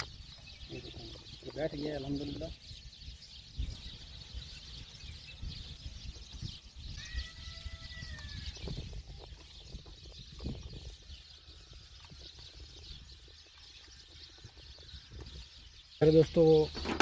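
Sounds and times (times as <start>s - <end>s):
drawn-out animal call: 6.7s - 9.4s.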